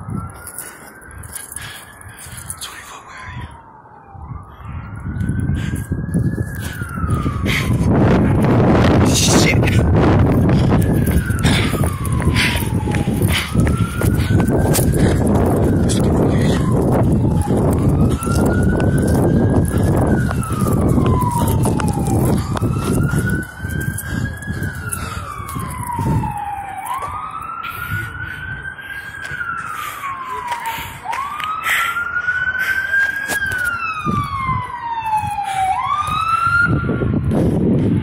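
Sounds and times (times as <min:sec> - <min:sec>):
siren wailing: 0:00.0 - 0:38.0
heavy low rumbling: 0:05.0 - 0:26.5.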